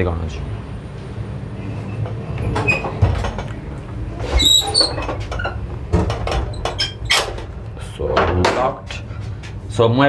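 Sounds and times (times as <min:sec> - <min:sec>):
low rumble of moving train coach: 0:00.0 - 0:10.0
door squeal: 0:02.4 - 0:03.0, 0:04.3 - 0:05.6.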